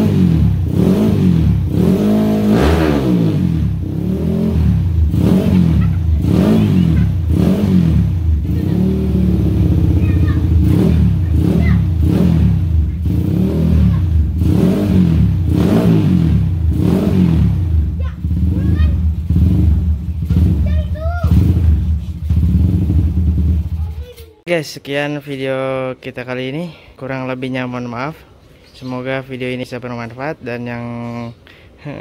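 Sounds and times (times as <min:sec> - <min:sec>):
motorcycle engine revving: 0:00.0 - 0:23.9
motorcycle engine idling: 0:03.5 - 0:15.5, 0:16.3 - 0:24.0.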